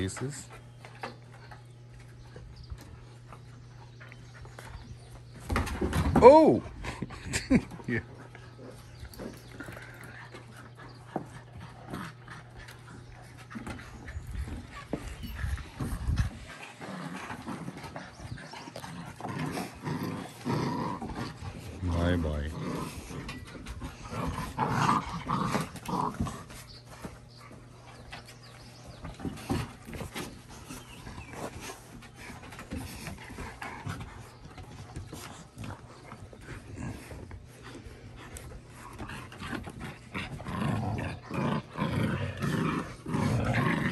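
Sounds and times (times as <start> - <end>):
puppies panting and scuffling: 0.0 - 43.9
paws tapping on wooden boards: 8.0 - 21.9, 22.9 - 40.5.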